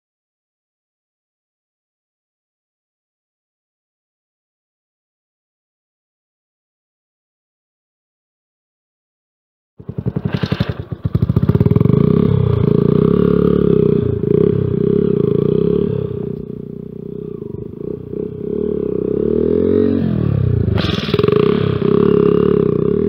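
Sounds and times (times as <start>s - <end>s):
motorcycle engine revving: 9.8s - 23.0s.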